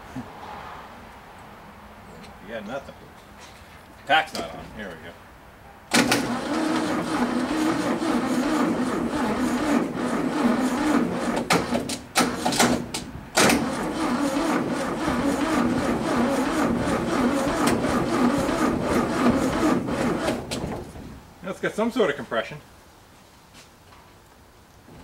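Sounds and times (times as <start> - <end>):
engine cranking on starter: 5.9 - 21.0.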